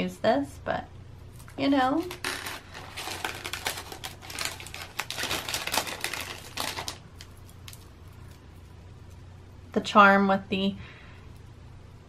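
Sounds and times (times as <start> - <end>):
plastic packaging crinkling: 1.4 - 9.1.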